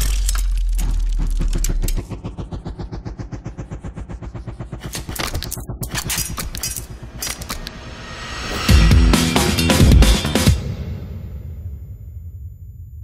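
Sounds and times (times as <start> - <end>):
sharp electronic cracks: 0.0 - 7.7
rapid stuttering electronic pulse: 0.0 - 8.0
rising electronic sweep: 0.0 - 9.8.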